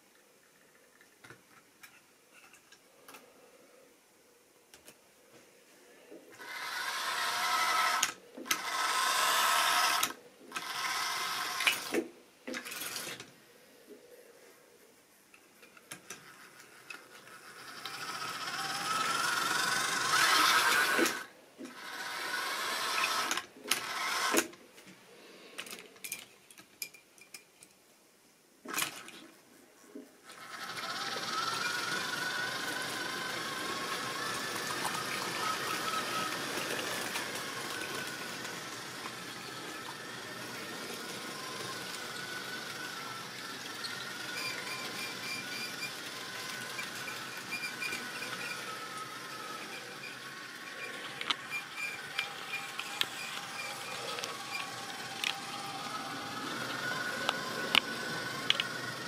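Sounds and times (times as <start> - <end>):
model train motor whirring: 6.4 - 13.3, 15.8 - 24.6, 30.2 - 59.0.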